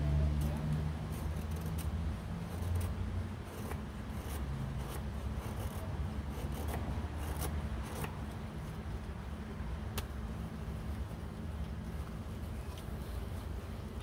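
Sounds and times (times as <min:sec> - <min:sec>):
low steady hum: 0:00.0 - 0:14.0
knife scraping wood: 0:01.1 - 0:08.2.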